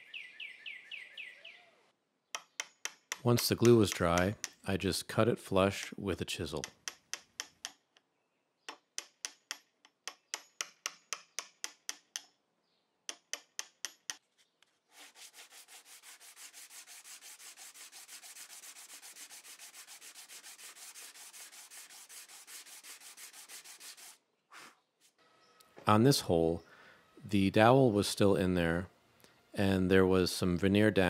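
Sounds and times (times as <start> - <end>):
sandpaper rubbing wood: 14.8 - 25.2.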